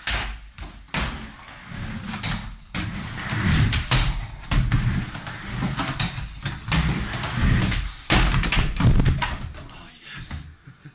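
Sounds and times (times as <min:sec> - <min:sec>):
skateboard wheels rumbling on plywood: 0:00.9 - 0:09.6
skateboard clacks and thuds: 0:02.2 - 0:09.6.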